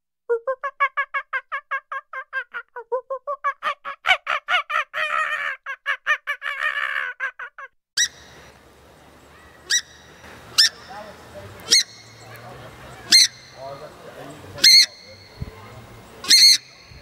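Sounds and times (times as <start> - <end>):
steady hiss: 8.1 - 17.0
brief shrill calls: 9.5 - 11.0, 11.6 - 12.4, 13.1 - 13.6, 14.6 - 15.6, 16.2 - 17.0.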